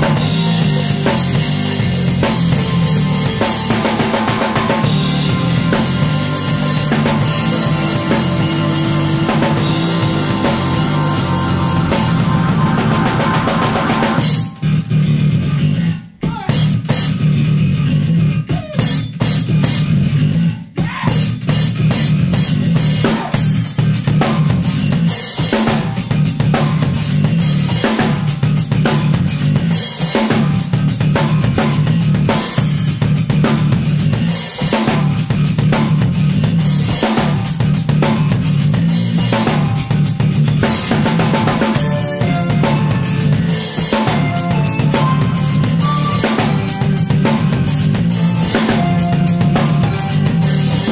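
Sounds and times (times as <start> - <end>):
drum kit hits: 0.0 - 15.0, 20.8 - 50.9
band playing instrumental rock: 0.0 - 15.9, 16.5 - 20.5, 21.1 - 50.9
electric bass line: 0.0 - 50.9.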